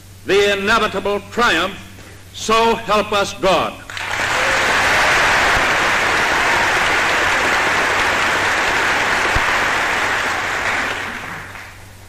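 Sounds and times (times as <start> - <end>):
faint low hum: 0.0 - 12.0
crowd applauding: 3.9 - 11.9.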